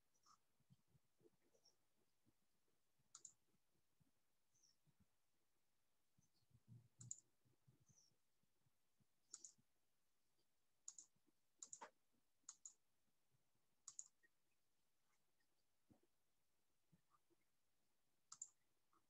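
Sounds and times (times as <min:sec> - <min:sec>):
computer mouse clicks: 0:03.1 - 0:03.4, 0:06.9 - 0:07.3, 0:09.3 - 0:09.6, 0:10.8 - 0:12.8, 0:13.8 - 0:14.3, 0:18.3 - 0:18.6.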